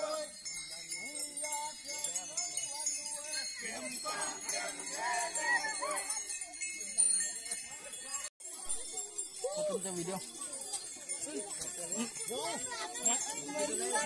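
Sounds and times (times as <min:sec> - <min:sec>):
people's voices: 0:00.0 - 0:14.0
small bells jingling: 0:00.0 - 0:14.0.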